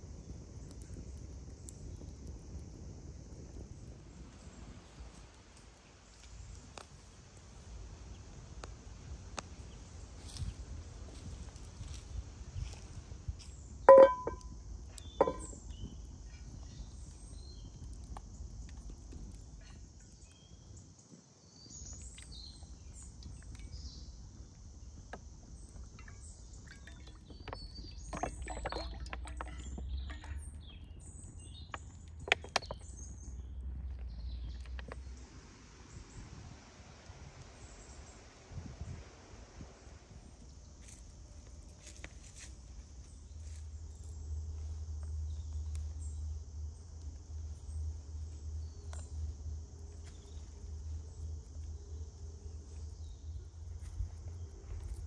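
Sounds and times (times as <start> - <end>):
sharp ringing knocks: 13.9 - 14.5, 15.2 - 15.6
light clicks and knocks: 13.9 - 15.8.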